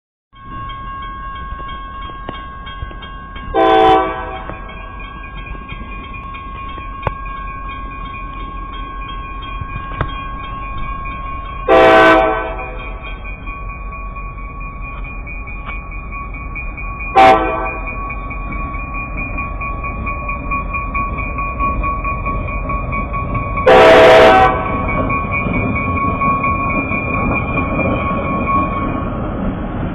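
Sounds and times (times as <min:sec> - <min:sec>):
railroad crossing bell ringing: 0:00.4 - 0:29.9
locomotive horn blast: 0:03.6 - 0:04.5, 0:11.7 - 0:12.8, 0:17.2 - 0:17.8, 0:23.7 - 0:24.7.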